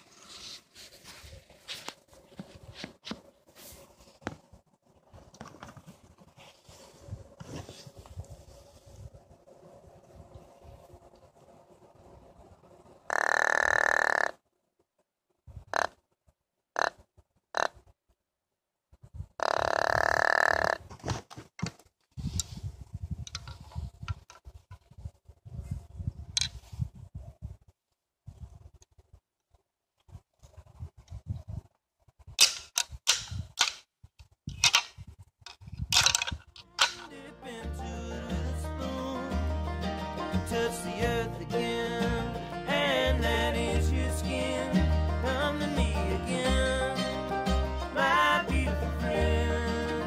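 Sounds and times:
clothing rustling: 0:00.0 - 0:04.2
deer grunt call: 0:13.1 - 0:14.4, 0:19.4 - 0:20.8
antlers clacking together: 0:35.5 - 0:37.1.

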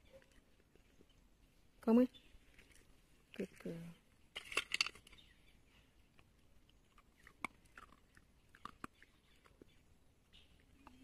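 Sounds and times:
puppy crunching a treat: 0:06.1 - 0:09.8.

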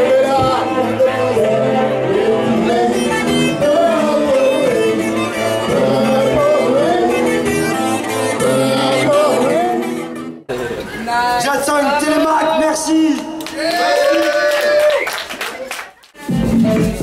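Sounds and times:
person singing: 0:00.0 - 0:10.2.

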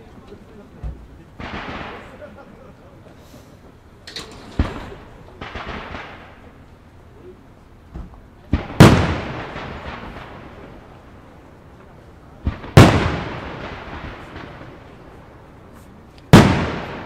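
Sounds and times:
fireworks bangs and thuds: 0:00.8 - 0:02.5, 0:04.2 - 0:06.6, 0:07.8 - 0:17.0.

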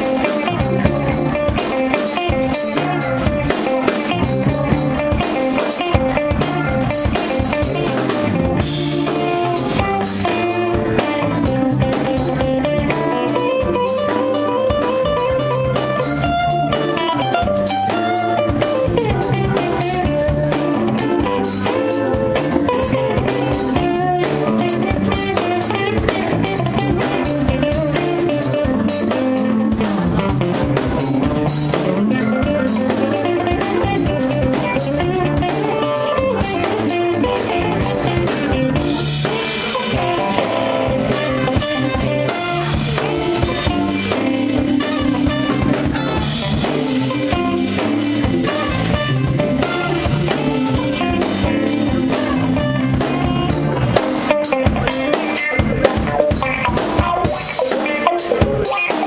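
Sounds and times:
drum kit: 0:00.0 - 0:59.0
electric bass: 0:00.0 - 0:59.0
electric guitar: 0:00.0 - 0:59.0
trumpet playing: 0:32.0 - 0:53.8.

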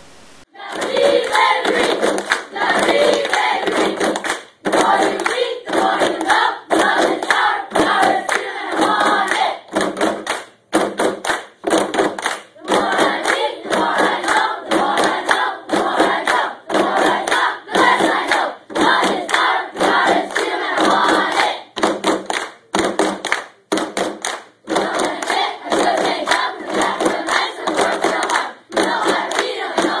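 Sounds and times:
group chanting: 0:00.4 - 0:09.7, 0:12.6 - 0:21.8, 0:24.7 - 0:30.0
hand claps: 0:00.7 - 0:30.0.

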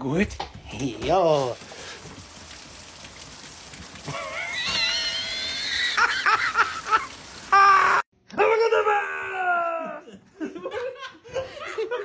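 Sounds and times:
rain falling: 0:00.0 - 0:08.0.

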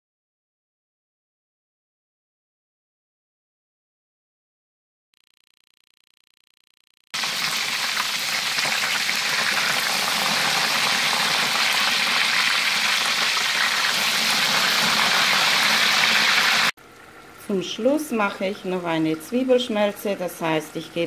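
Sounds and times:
meat sizzling in hot oil: 0:07.2 - 0:16.7.

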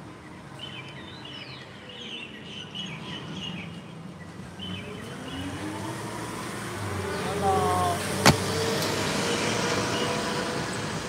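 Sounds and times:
birds chirping: 0:07.0 - 0:10.2.

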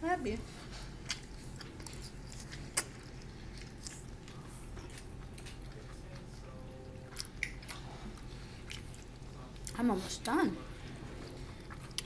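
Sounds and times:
chewing and slurping noodles: 0:10.8 - 0:12.0.

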